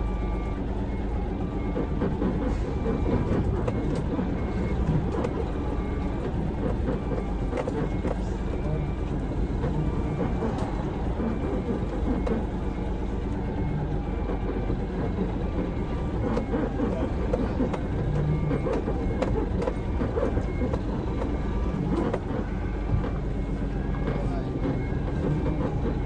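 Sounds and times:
truck diesel engine running: 0:00.0 - 0:26.0.

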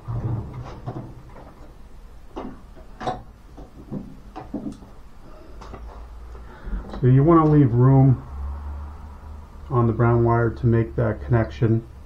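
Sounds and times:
light clicks and knocks: 0:00.5 - 0:05.0.

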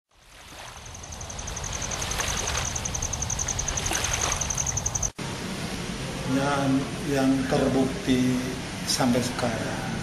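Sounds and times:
steady rushing noise: 0:05.0 - 0:10.0.

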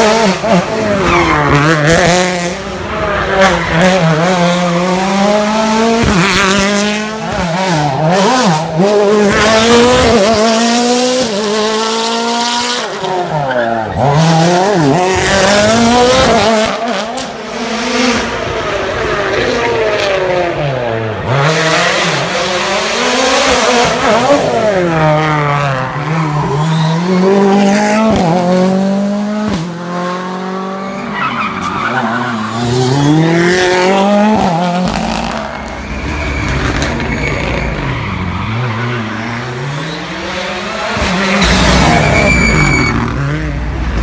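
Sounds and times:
rally car engines revving: 0:00.0 - 0:44.0
tyre squeal: 0:30.9 - 0:33.6, 0:35.2 - 0:39.2, 0:41.3 - 0:43.1.

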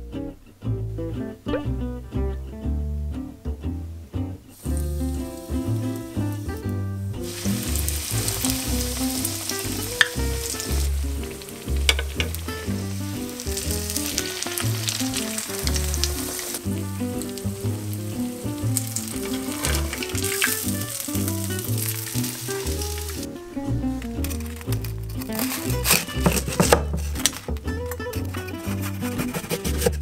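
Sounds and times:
oil popping: 0:04.5 - 0:30.0
cutlet sizzling in hot oil: 0:04.6 - 0:23.4, 0:24.0 - 0:27.4.

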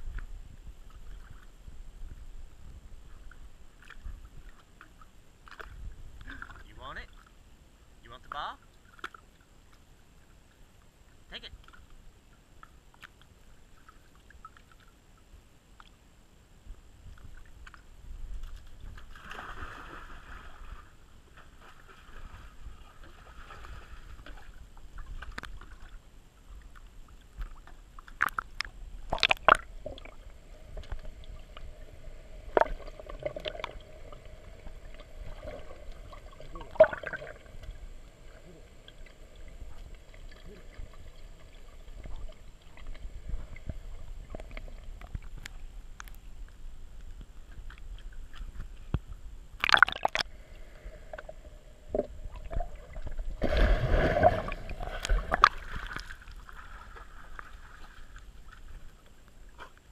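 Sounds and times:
muffled water sloshing: 0:17.1 - 0:59.9.

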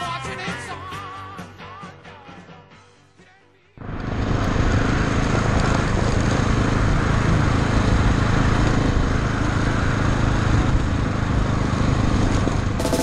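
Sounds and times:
motorcycle engine running: 0:04.6 - 0:13.0.

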